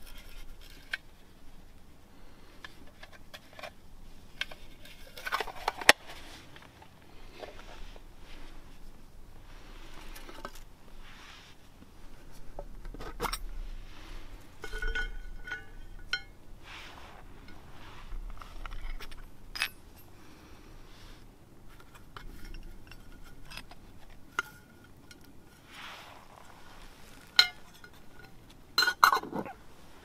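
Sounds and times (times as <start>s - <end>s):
soft rustling: 0.0s - 30.0s
metal lids clicking and clinking: 4.4s - 6.7s, 14.4s - 16.4s, 18.4s - 20.1s, 21.7s - 25.6s, 27.2s - 29.6s
metal ringing: 14.2s - 16.6s, 27.4s - 29.2s.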